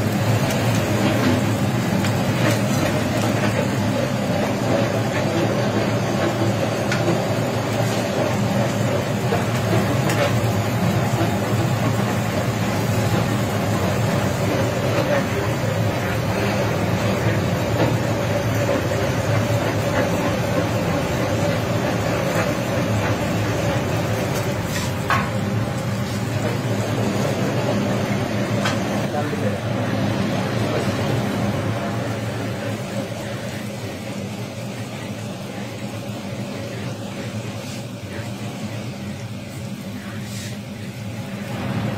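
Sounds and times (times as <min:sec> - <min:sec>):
chicken frying on griddle: 0:00.0 - 0:41.9
low mechanical hum: 0:00.0 - 0:41.9
metal spatula on griddle: 0:24.3 - 0:25.4, 0:40.2 - 0:40.6.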